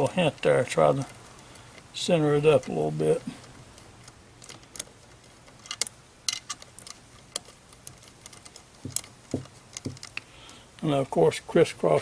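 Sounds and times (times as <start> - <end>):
metal nuts clicking and tapping: 0.0 - 10.6
dull knocks: 8.8 - 10.1.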